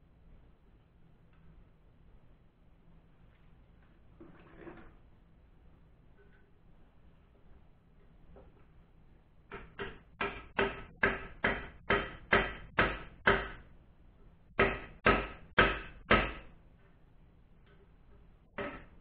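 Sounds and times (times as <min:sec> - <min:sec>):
hammer striking metal driver: 0:09.5 - 0:13.6, 0:14.6 - 0:16.5.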